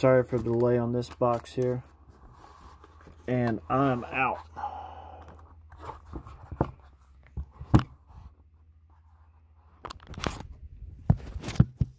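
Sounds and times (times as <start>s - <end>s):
rustling scrape: 1.3s - 4.5s.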